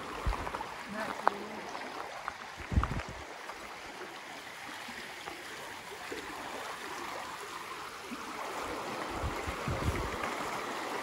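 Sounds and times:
river running over stones: 0.0s - 11.0s.

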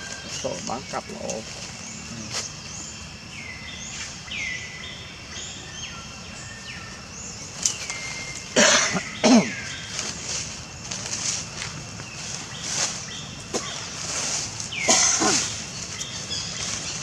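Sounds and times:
high sliding animal calls: 12.6s - 17.0s.

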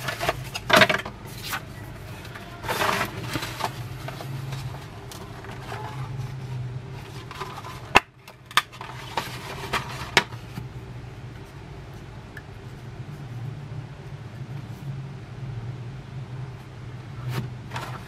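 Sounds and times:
packaging rustling: 0.0s - 10.5s
low steady hum: 0.0s - 18.0s.

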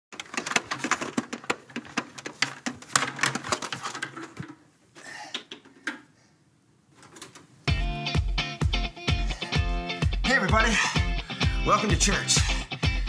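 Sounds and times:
sharp clicks and knocks: 0.1s - 4.6s.

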